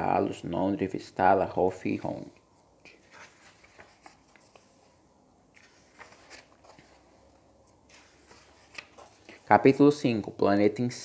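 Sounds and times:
book pages turning: 2.9s - 9.5s.

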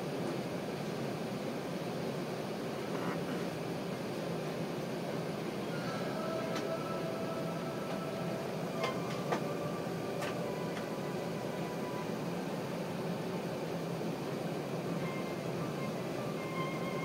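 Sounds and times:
aircraft cabin rumble and hiss: 0.0s - 17.0s
faint high whine: 5.6s - 17.0s.

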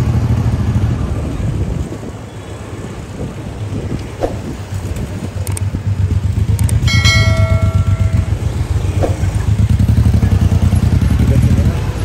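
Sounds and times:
motorcycle engine throbbing: 5.7s - 11.6s
bell ringing: 6.8s - 8.7s.

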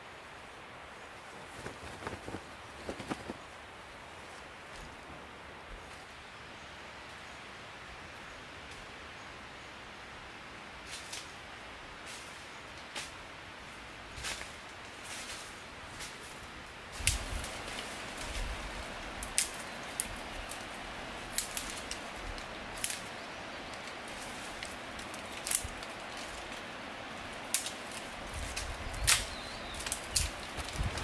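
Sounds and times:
rustling undergrowth: 0.0s - 6.4s, 10.5s - 31.0s
forest background hiss: 0.0s - 31.0s
footsteps in leaf litter: 14.1s - 31.0s
twigs snapping: 17.0s - 18.5s, 19.2s - 31.0s.

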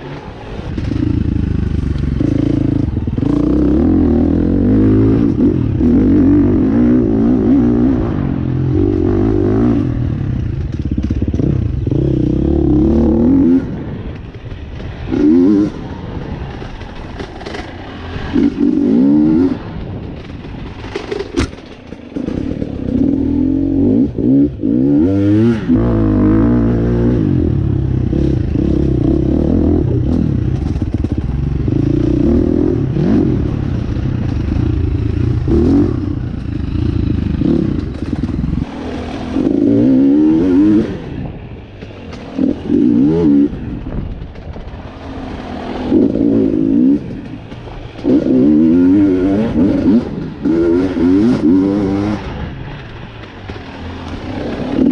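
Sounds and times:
motorcycle engine revving: 0.0s - 54.9s.

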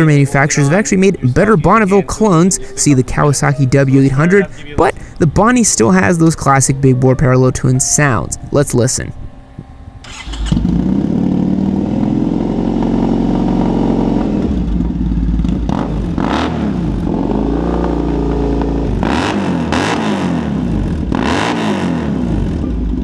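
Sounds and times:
motorcycle engine idling and revving: 10.0s - 23.0s.

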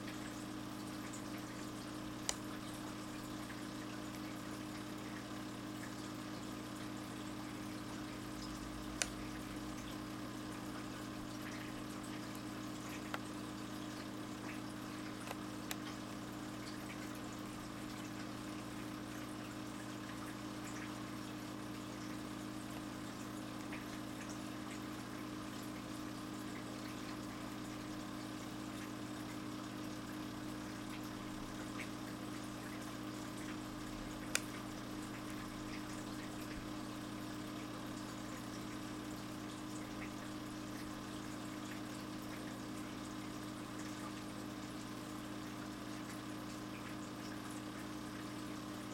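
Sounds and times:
filter pump humming: 0.0s - 48.9s
water trickling: 0.0s - 48.9s
faint ticks: 32.7s - 36.6s.

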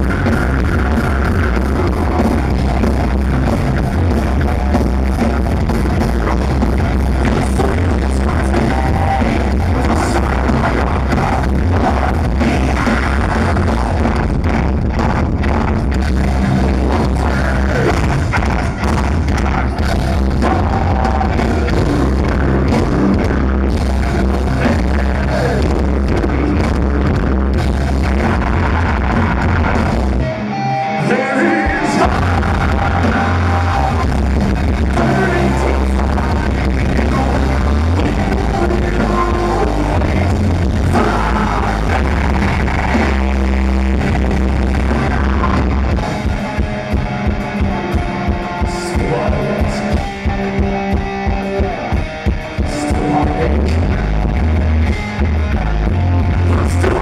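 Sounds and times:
live metal band playing: 0.0s - 57.0s
person singing: 6.2s - 14.3s, 16.6s - 23.5s, 24.6s - 27.2s, 30.6s - 46.1s, 47.8s - 51.9s, 52.6s - 54.1s, 56.4s - 57.0s.

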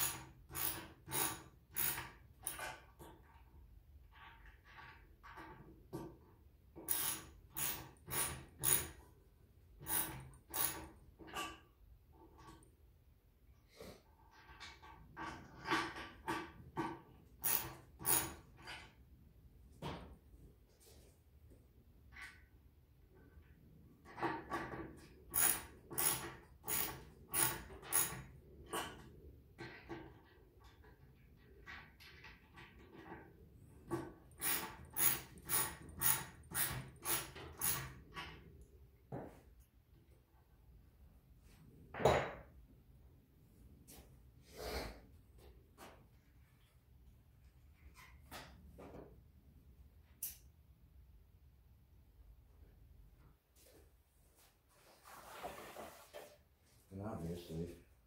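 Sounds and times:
ratchet wrench clicking: 0.0s - 2.6s, 6.9s - 9.0s, 17.4s - 18.4s, 25.4s - 28.2s, 34.3s - 37.9s.

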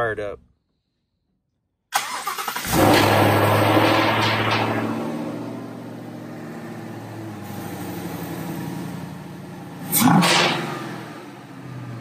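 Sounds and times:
intake rush: 2.0s - 11.5s
car engine idling: 2.0s - 12.0s
engine throttle blip: 9.9s - 11.3s.

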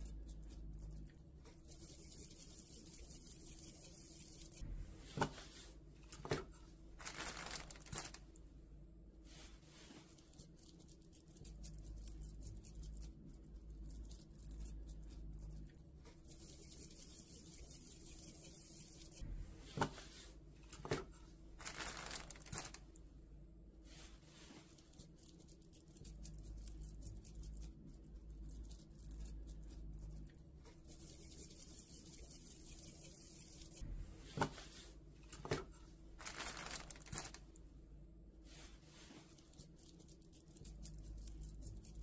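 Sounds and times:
plastic bag crinkling: 7.0s - 8.2s, 21.6s - 22.8s, 36.2s - 37.4s.

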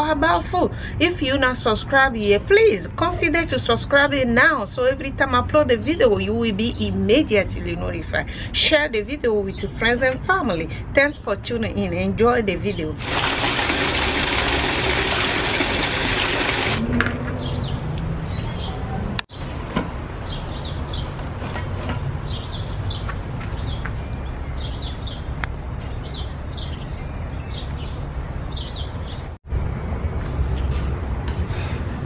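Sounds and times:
water pouring into metal bucket: 13.0s - 16.8s
birds chirping: 22.2s - 29.4s.

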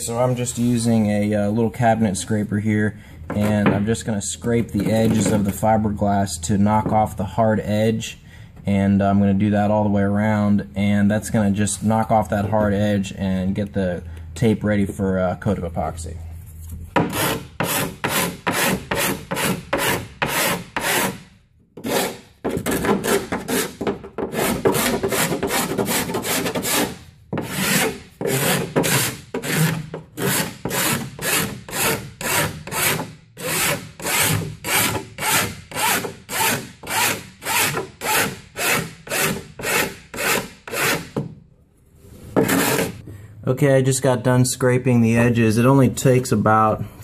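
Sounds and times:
cabinet scraper scraping epoxy: 3.3s - 5.7s, 16.9s - 41.3s, 42.0s - 43.0s.

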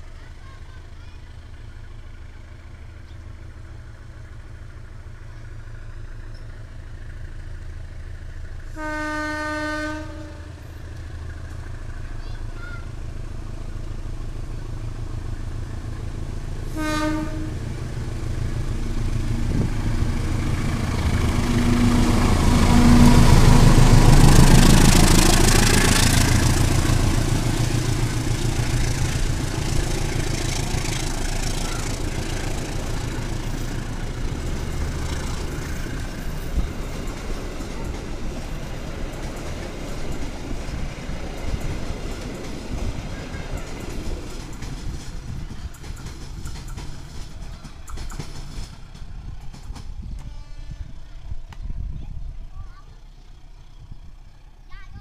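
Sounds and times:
diesel locomotive passing: 0.0s - 55.0s
train horn toot: 8.7s - 10.7s, 16.7s - 17.6s, 50.1s - 51.2s
train wheels clacking on rails: 14.2s - 51.7s.

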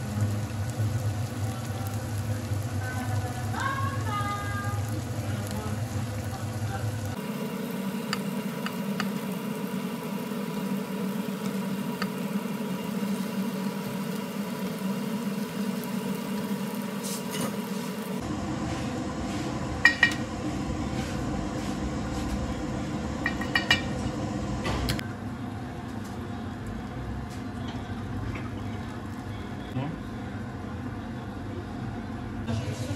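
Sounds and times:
sauce simmering and frying: 0.0s - 18.4s.

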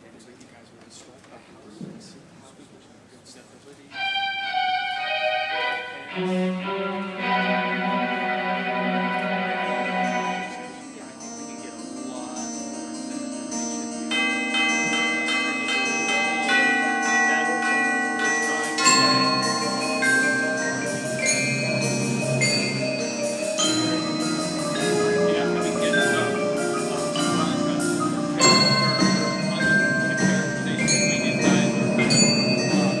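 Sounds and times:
marimbas and chimes playing melody: 5.0s - 33.0s
accented percussion hits: 12.2s - 33.0s.

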